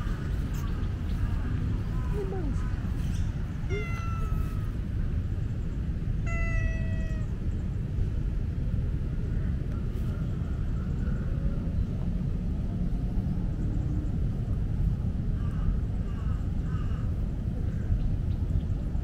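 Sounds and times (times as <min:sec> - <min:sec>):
steady low rumble: 0:00.0 - 0:19.0
cat meowing: 0:03.7 - 0:04.8, 0:06.2 - 0:07.4.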